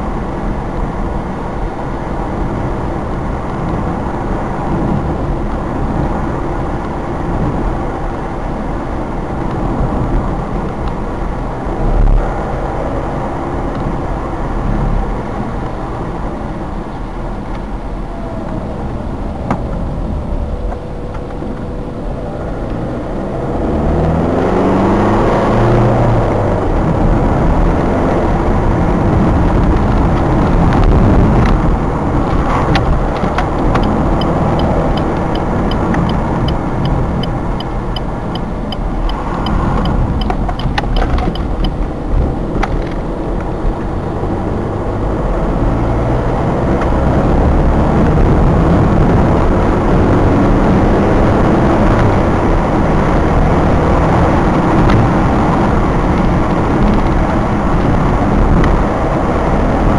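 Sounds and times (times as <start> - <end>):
car engine and tyre rumble: 0.0 - 59.9
light regular ticking: 32.8 - 41.9.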